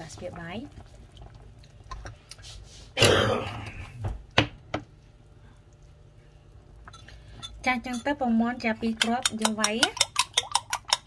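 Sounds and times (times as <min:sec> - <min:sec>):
person clearing throat: 0:03.0 - 0:04.0
metal spoon clicking on pan: 0:09.0 - 0:11.0.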